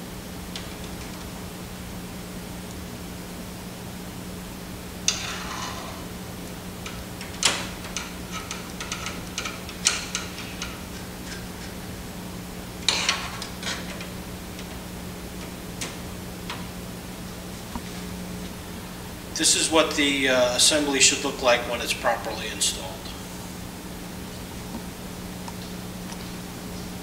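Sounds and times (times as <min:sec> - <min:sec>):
screwdriver clicking on sheet metal: 0:06.8 - 0:11.9.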